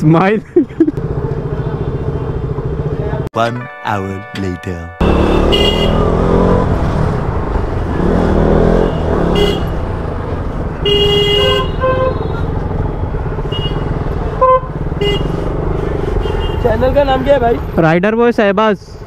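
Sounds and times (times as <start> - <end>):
traffic noise: 0.0 - 3.3, 5.0 - 19.0
motorcycle engine rumble: 0.3 - 3.3
vehicle horns beeping: 5.0 - 6.6, 8.7 - 9.8, 10.8 - 12.6, 13.4 - 16.8.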